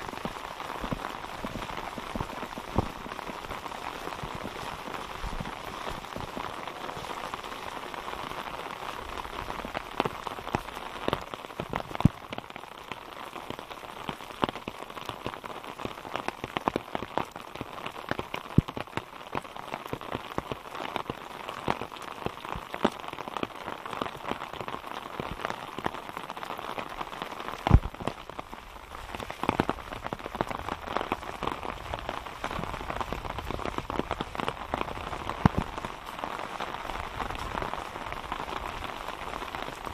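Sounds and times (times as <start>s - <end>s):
raindrops hitting close by: 0.0s - 39.9s
steady rain falling: 0.0s - 39.9s.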